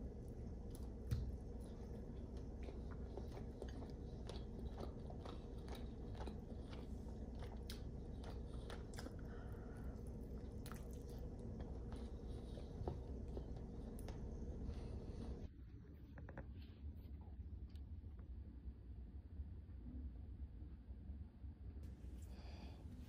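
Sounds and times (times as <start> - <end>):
person chewing: 0.0 - 15.5.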